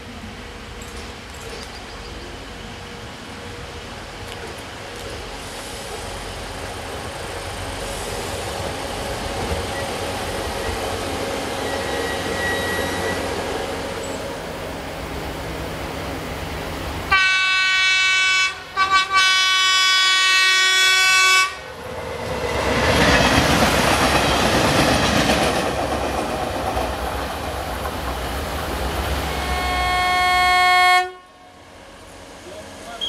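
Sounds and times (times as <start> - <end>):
railcar engine passing: 0.0 - 33.0
train horn blast: 17.1 - 21.7, 29.3 - 31.7.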